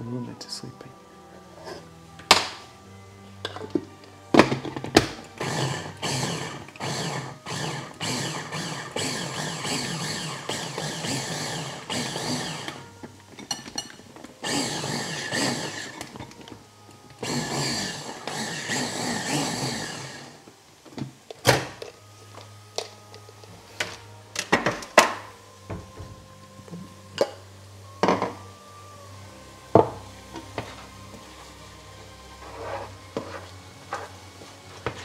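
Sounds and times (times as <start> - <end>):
blender running: 5.4 - 12.9, 14.4 - 16.1, 17.2 - 20.4.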